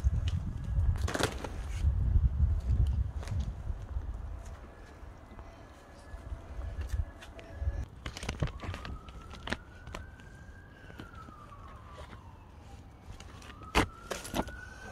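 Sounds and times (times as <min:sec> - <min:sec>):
emergency siren wailing: 0:04.0 - 0:14.9.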